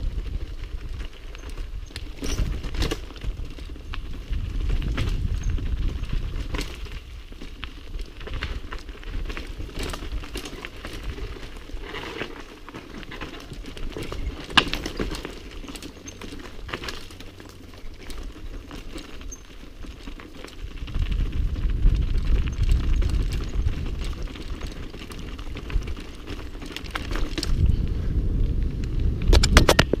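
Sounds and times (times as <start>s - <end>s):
wind rumble on microphone: 0.0s - 12.3s, 19.8s - 30.0s
bike rattling and clicking: 0.0s - 30.0s
tyres crunching over stones: 0.3s - 27.7s.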